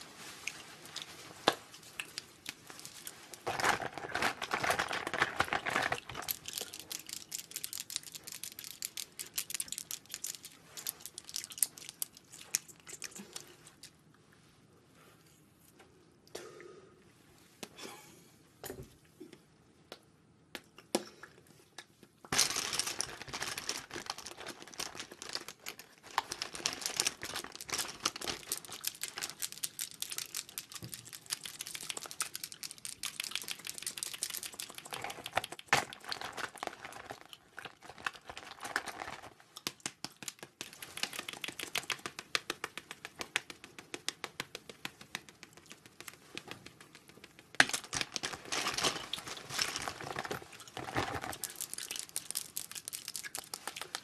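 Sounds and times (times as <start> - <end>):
plastic wrappers crinkling: 0.0 - 13.8, 22.3 - 42.2, 45.4 - 54.0
clicking and tapping small items: 3.5 - 13.2, 21.8 - 54.0.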